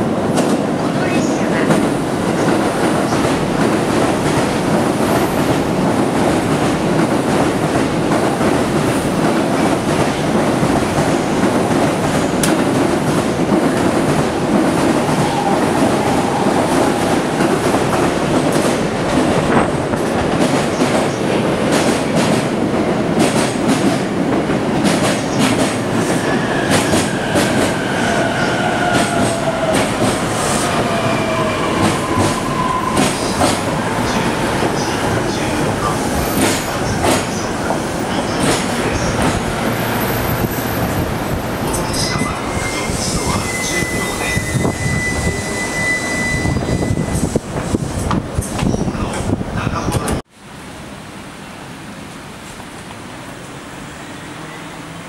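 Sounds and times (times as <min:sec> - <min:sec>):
train wheels rumbling on rail: 0:00.0 - 0:50.3
rail joint clicks: 0:09.2 - 0:15.0.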